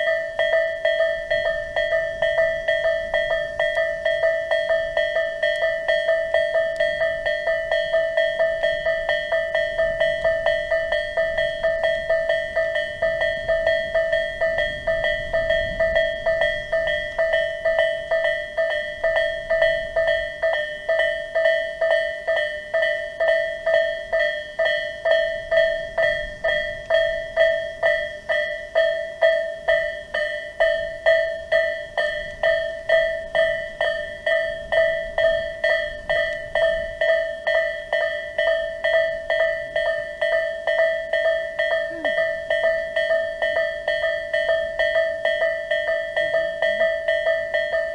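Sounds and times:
level crossing warning bell: 0.0s - 47.9s.

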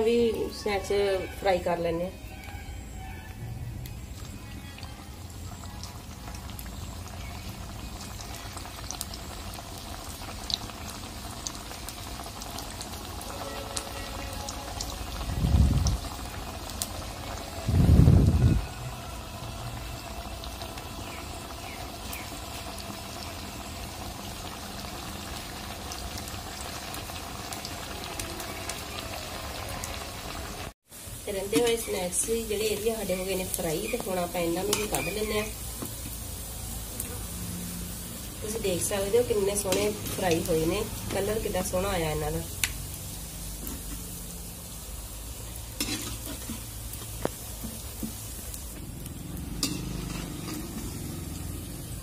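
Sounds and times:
food deep-frying in oil: 0.0s - 52.0s
small pops of frying oil: 5.8s - 13.0s, 31.4s - 36.3s, 38.8s - 41.4s, 42.5s - 44.4s, 45.4s - 51.8s.

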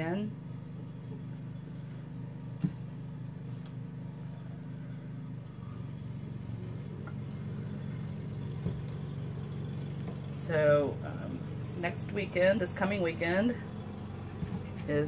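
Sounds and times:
lawn mower engine running: 0.4s - 15.0s.

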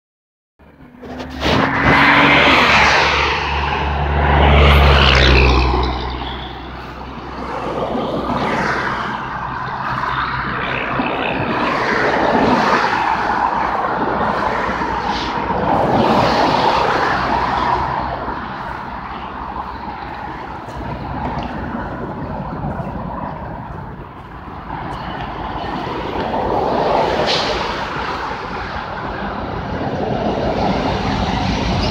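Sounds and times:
heavy engine humming: 0.6s - 31.9s
passing road traffic: 0.6s - 31.9s
train rolling by: 0.6s - 31.9s.

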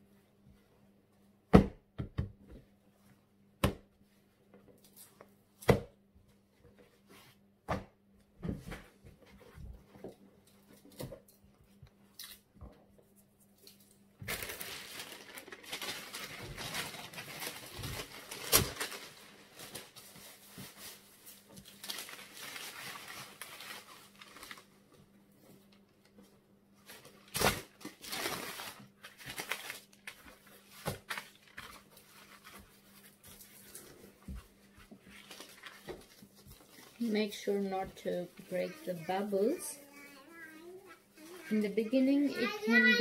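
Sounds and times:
baking paper rustling: 13.1s - 43.0s
loud paper crackle: 14.2s - 24.8s, 26.9s - 34.0s, 35.1s - 37.1s.

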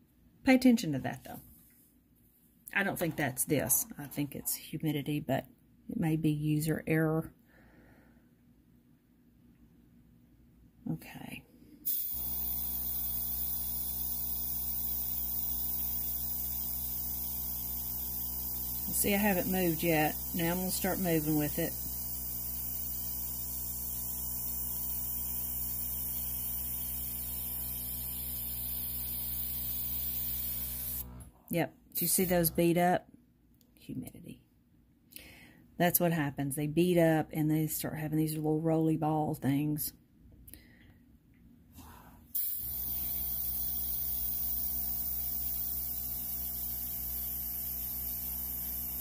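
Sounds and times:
air hissing from airbrush: 11.9s - 24.2s
airbrush air hiss: 11.9s - 31.1s, 42.4s - 49.0s
compressor motor hum: 11.9s - 31.3s, 42.4s - 49.0s.

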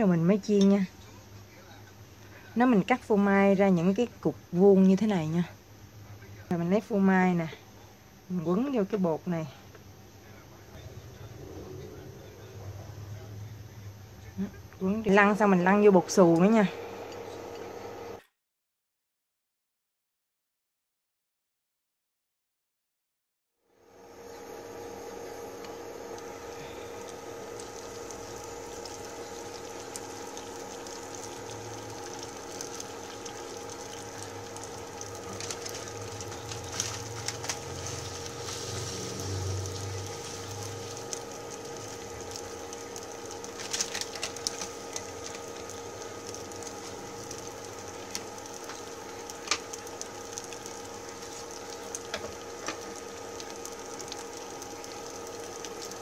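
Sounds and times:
deep-frying sizzling and bubbling: 0.0s - 18.1s, 23.8s - 56.0s
steady hum: 0.0s - 18.2s, 23.7s - 56.0s
oil crackles and pops: 25.6s - 56.0s.

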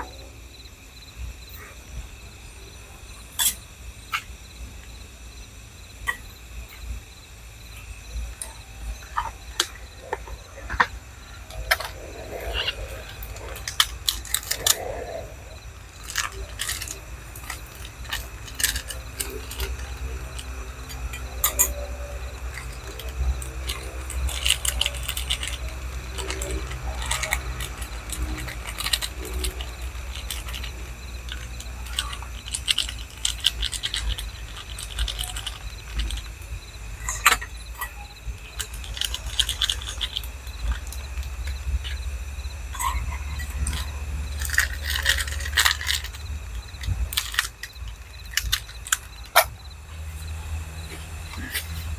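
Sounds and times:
steady low rumble: 0.0s - 51.9s
plastic sachets crinkling: 9.0s - 51.9s
clicks and light clinks: 11.5s - 51.9s.

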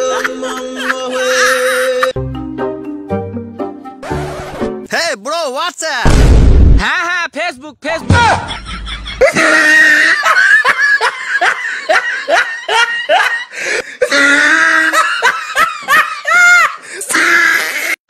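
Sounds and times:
loud hearty laughter: 0.0s - 2.2s, 8.1s - 16.8s.

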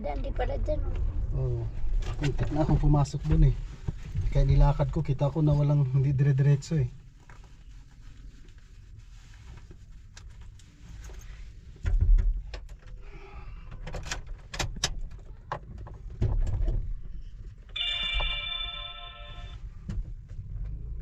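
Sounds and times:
low rumble: 0.0s - 5.5s.

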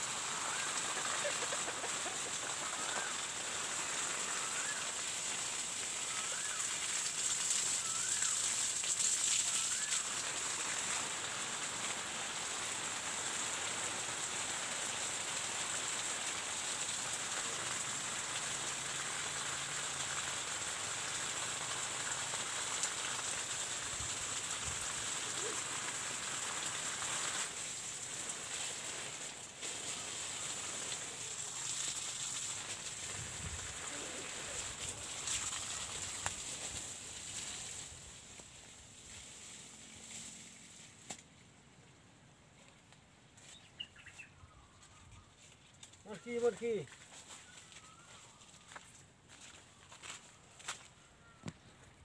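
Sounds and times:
hose water spattering on soil: 0.0s - 41.4s.

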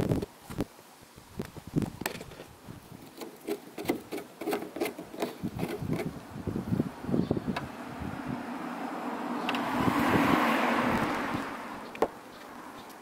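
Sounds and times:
antenna unscrewing scrapes and clicks: 1.4s - 6.2s.

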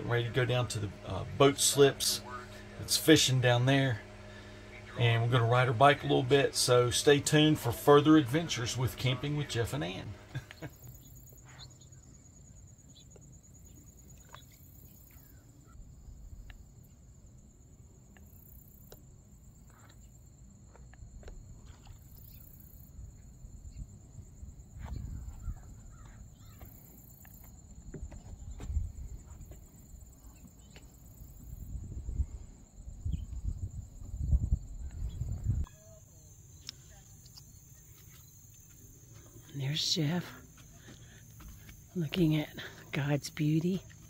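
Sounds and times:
high insect trill: 0.0s - 44.0s
pulsing insect calls: 0.0s - 44.0s
wind rumble on microphone: 22.9s - 26.3s, 27.9s - 29.6s, 31.6s - 35.7s.

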